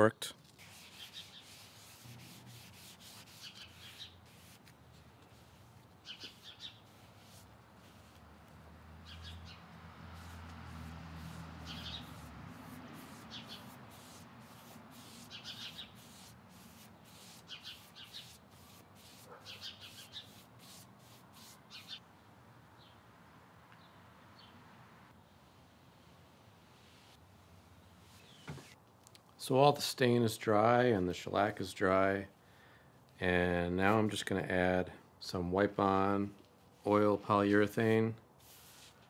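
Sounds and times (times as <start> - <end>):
foam brush strokes on wood: 0.5 - 8.4, 10.0 - 22.0, 38.4 - 39.0.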